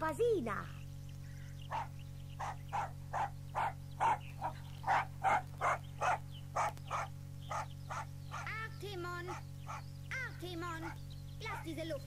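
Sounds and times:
low tape hum: 0.0 - 12.0
dog barking: 1.7 - 8.6, 9.2 - 9.8, 10.8 - 11.7.

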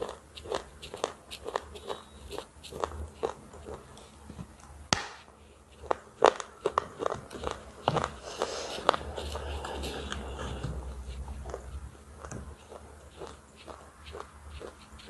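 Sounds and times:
crunchy biting and chewing: 0.0 - 4.0, 5.1 - 15.0.

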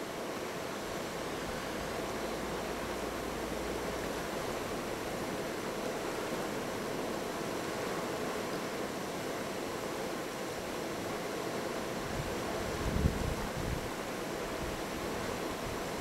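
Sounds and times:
river rapids rushing: 0.0 - 16.0.

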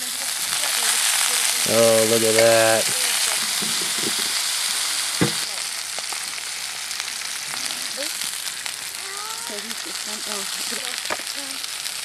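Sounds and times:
patties sizzling in a skillet: 0.0 - 12.0
knock: 5.2 - 5.4.

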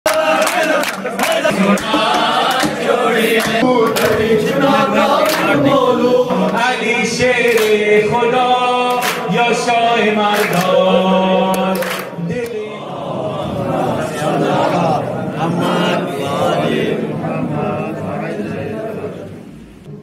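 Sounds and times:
hand clapping: 0.0 - 7.9, 8.8 - 9.4, 10.3 - 10.9, 11.5 - 12.6
men chanting together: 0.1 - 19.3.

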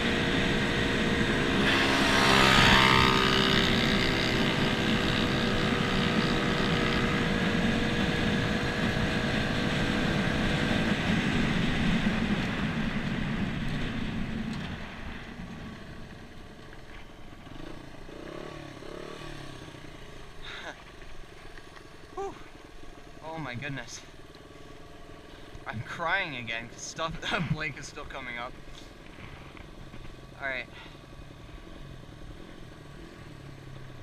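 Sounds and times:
dirt bike engine running hard: 0.0 - 34.0.

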